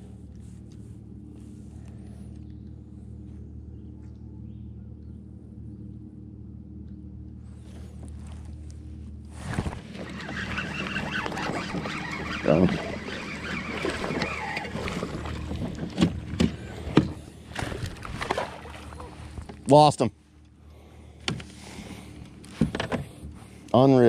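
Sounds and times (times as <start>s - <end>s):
fishing reel whirring: 9.7s - 15.6s.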